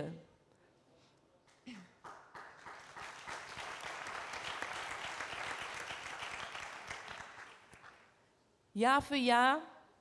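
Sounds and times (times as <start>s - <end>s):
audience applause: 2.0s - 8.1s.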